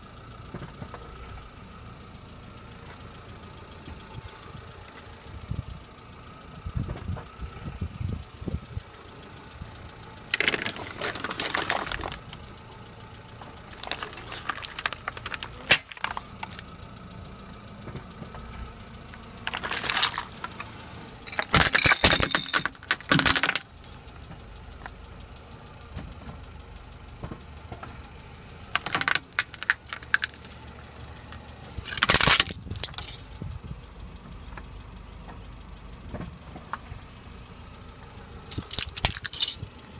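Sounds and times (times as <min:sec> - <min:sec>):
car engine idling: 0:00.0 - 0:39.9
tyre crushing objects: 0:10.4 - 0:12.3, 0:13.7 - 0:16.6, 0:19.5 - 0:20.7, 0:21.3 - 0:23.7
plastic plate cracking: 0:28.8 - 0:30.5.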